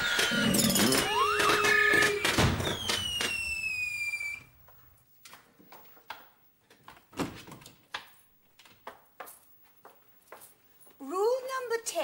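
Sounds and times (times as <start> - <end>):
high whistle gliding down: 0.9 - 4.5
footsteps on wooden floorboards: 6.7 - 11.0.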